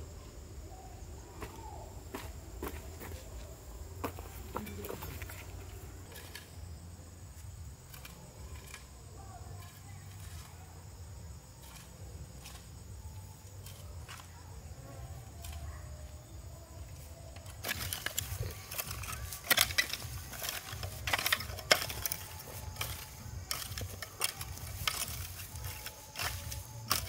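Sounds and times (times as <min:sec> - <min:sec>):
rake scraping stony soil: 0:04.2 - 0:27.0
hoe chopping into dry soil: 0:17.5 - 0:27.0.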